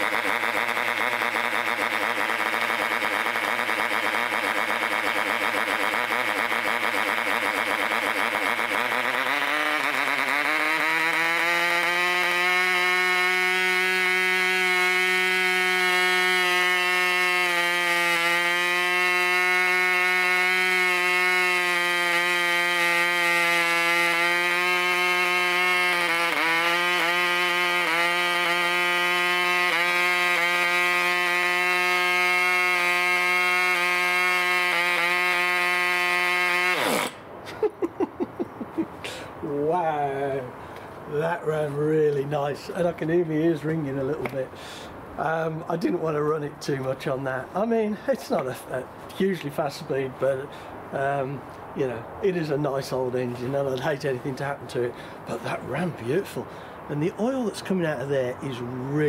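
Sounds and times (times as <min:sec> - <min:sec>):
model engine high buzz: 0:00.0 - 0:37.8.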